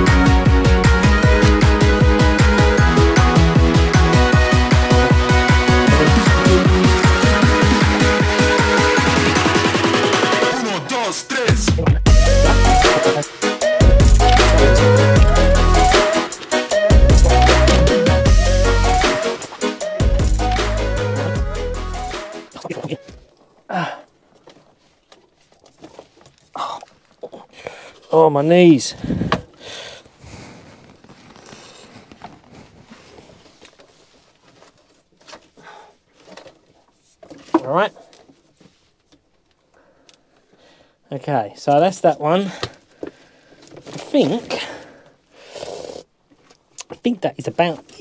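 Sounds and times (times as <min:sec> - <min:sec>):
background music with deep bass: 0:00.0 - 0:22.8
drum beat: 0:00.2 - 0:10.5, 0:11.5 - 0:22.8
repeating melody line: 0:00.2 - 0:10.5, 0:12.1 - 0:23.0
cables rustling: 0:22.6 - 0:28.2, 0:29.0 - 0:40.5, 0:42.6 - 0:45.1.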